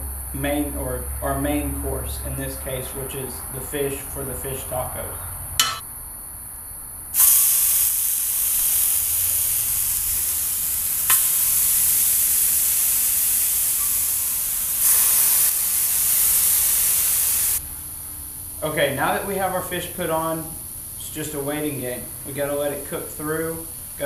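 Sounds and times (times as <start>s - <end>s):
fish fillets sizzling on hot steel: 7.2s - 17.6s.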